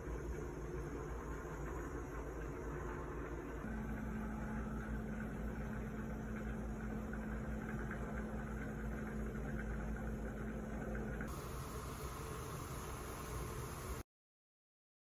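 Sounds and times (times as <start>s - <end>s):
electric motor hum: 0.0s - 14.0s.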